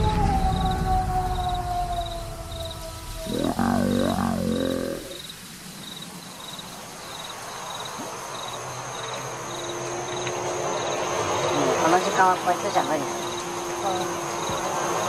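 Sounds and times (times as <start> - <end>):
crickets chirping: 0.0 - 15.0
steady hiss: 1.9 - 9.5.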